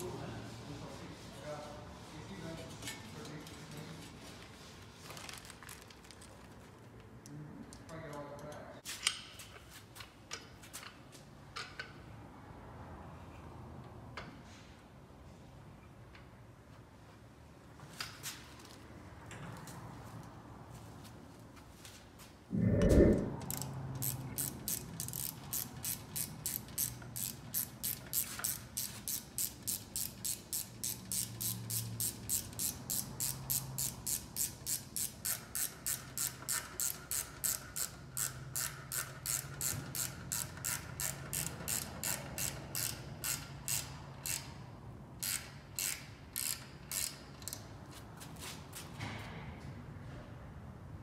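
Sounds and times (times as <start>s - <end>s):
ratchet wrench clicking: 23.5s - 44.6s, 45.2s - 47.7s.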